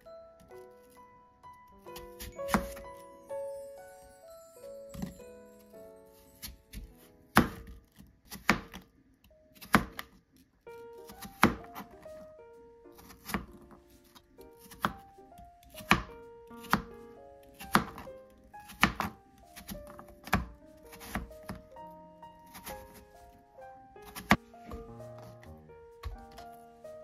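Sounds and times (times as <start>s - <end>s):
background music: 0.0s - 8.7s, 10.6s - 27.0s
knife slicing apple: 2.0s - 2.8s, 6.4s - 8.9s, 9.5s - 10.2s, 11.0s - 12.0s, 12.9s - 15.0s, 15.7s - 21.7s, 22.4s - 23.1s, 24.0s - 25.3s.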